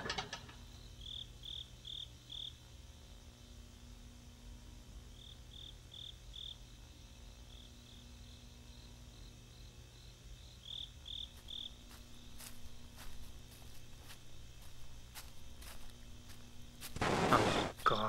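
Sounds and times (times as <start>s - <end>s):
low steady hum: 0.0s - 18.0s
crickets chirping: 0.4s - 18.0s
footsteps crunching through grass: 11.2s - 18.0s.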